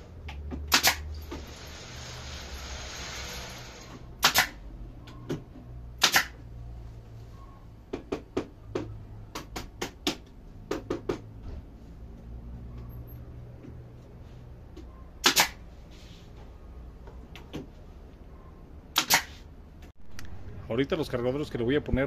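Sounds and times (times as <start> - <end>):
brad nailer firing: 0.7 - 4.6, 6.0 - 6.4, 15.2 - 15.6, 19.0 - 19.4.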